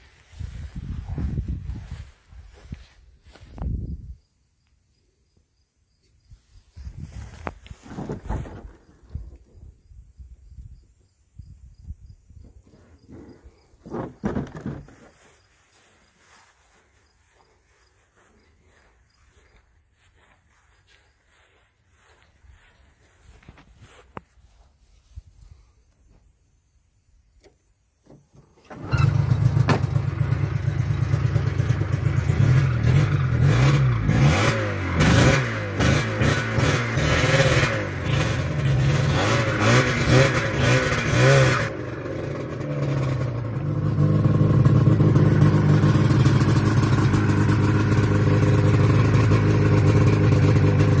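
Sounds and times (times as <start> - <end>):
snowmobile engine revving: 28.7 - 51.0.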